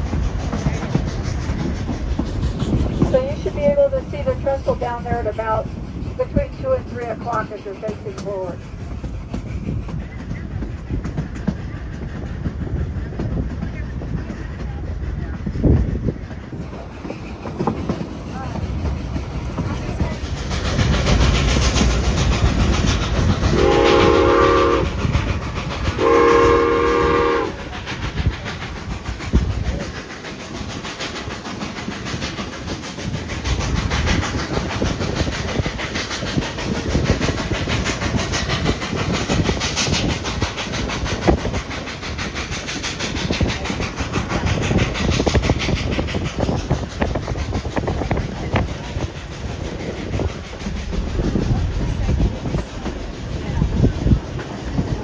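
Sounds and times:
train rumbling on rails: 0.0 - 55.0
steam whistle blasts: 23.5 - 25.0, 26.0 - 27.7.

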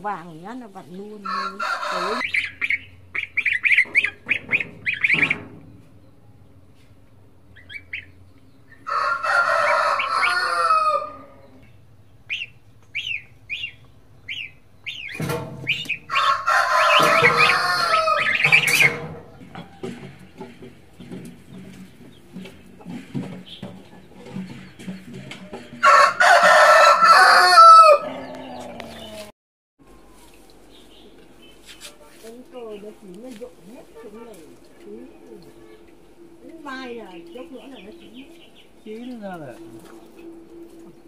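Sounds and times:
chicken clucks and chirps: 1.0 - 6.5, 7.5 - 11.7, 12.3 - 29.3
rooster crowing: 1.2 - 2.4, 8.7 - 11.6, 16.1 - 18.9, 25.5 - 29.0.

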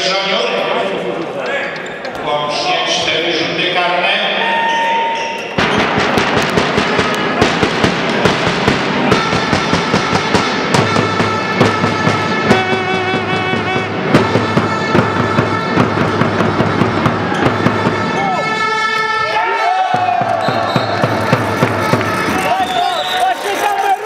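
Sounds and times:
loud music with fast drum beat: 5.6 - 18.2, 20.0 - 22.6.

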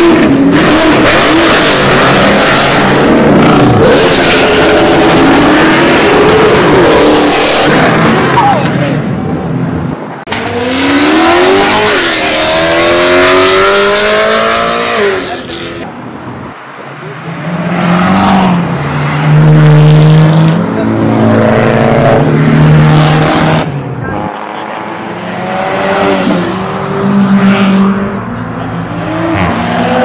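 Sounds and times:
car engine revving up: 10.3 - 15.9.

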